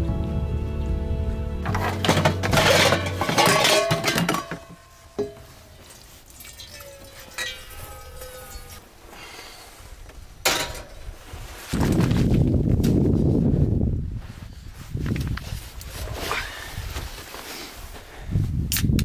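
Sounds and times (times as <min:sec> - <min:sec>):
camp cookware clinking: 0:01.6 - 0:08.8, 0:10.4 - 0:11.0.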